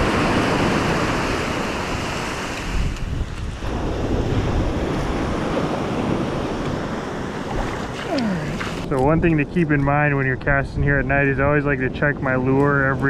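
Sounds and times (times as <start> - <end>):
ocean surf washing on sand: 0.0 - 9.8
wind buffeting microphone: 0.0 - 13.0.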